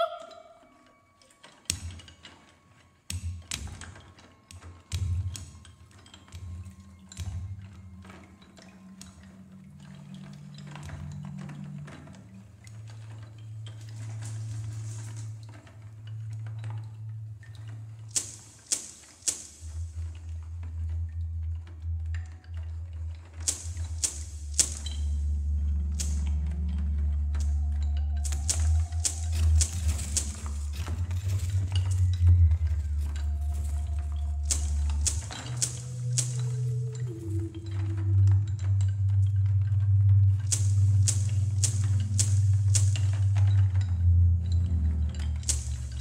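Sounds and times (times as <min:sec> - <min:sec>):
low held tones: 0:00.0 - 0:01.3, 0:19.7 - 0:46.0
light percussion clicks and taps: 0:00.8 - 0:46.0
steady low hum: 0:19.6 - 0:46.0
sharp dry percussion clicks: 0:23.4 - 0:38.0, 0:40.3 - 0:46.0.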